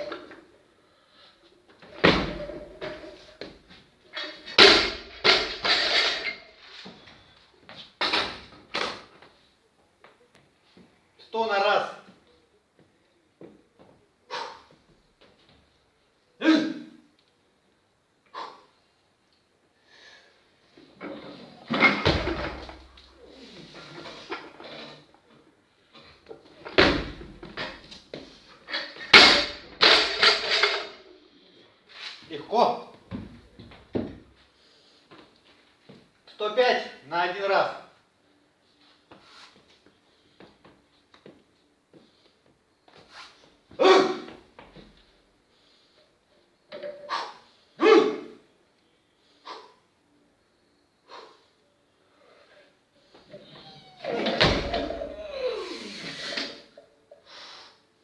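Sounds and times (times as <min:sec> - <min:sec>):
plates bouncing and rattling: 0:04.2 - 0:06.5, 0:28.7 - 0:31.0, 0:54.0 - 0:55.2
barbell crashing on floor: 0:04.3 - 0:06.4, 0:21.7 - 0:22.9, 0:26.7 - 0:27.8, 0:28.8 - 0:31.0, 0:54.1 - 0:55.3
barbell plates clanking: 0:28.7 - 0:31.0.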